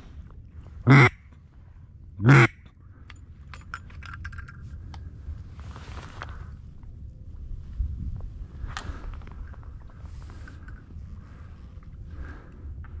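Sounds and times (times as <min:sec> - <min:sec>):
duck call quacks: 0:00.9 - 0:01.2, 0:02.2 - 0:02.6
clicks and rustling in reeds: 0:04.3 - 0:06.6.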